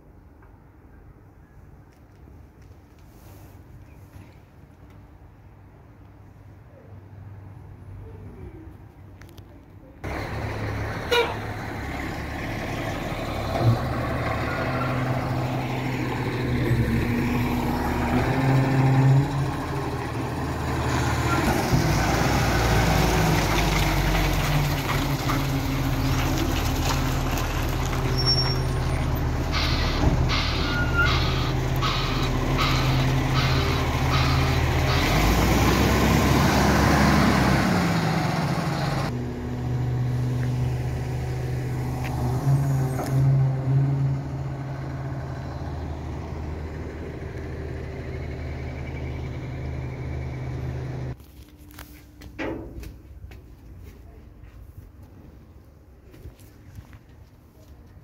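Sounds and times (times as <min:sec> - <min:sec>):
diesel truck engines running: 0:10.0 - 0:53.7.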